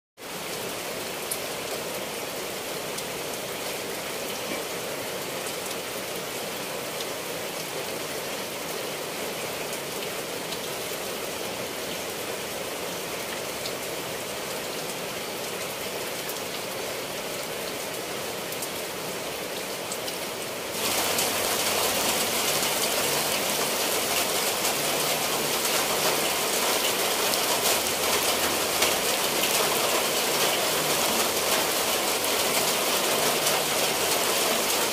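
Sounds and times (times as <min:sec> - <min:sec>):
rain on leaves and tiled roof: 0:00.2 - 0:34.9.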